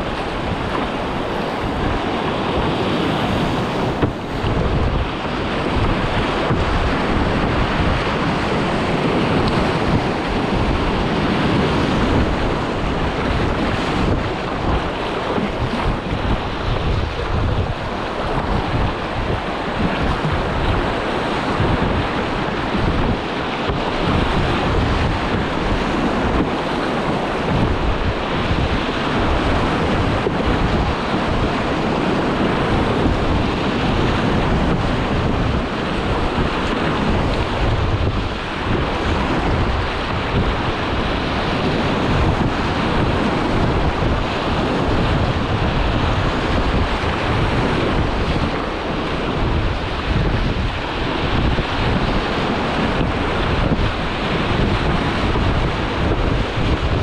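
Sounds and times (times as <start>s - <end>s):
river water rushing and splashing: 0.0s - 57.0s
wind buffeting microphone: 0.0s - 57.0s.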